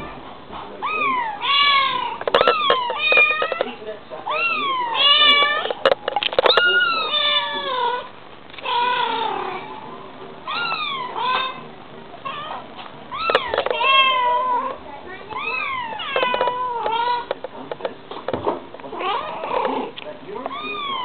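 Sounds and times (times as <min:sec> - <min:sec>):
cat and kitten meowing: 0:00.8 - 0:03.6, 0:10.5 - 0:11.6, 0:12.3 - 0:14.8, 0:15.4 - 0:17.3.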